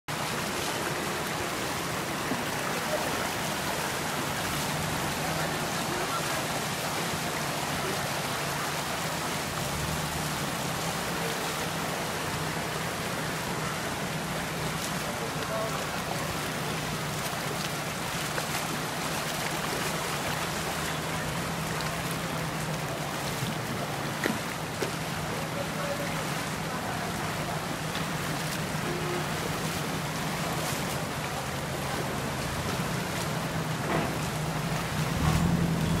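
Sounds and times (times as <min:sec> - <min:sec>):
floodwater rushing down a street: 0:00.0 - 0:36.0.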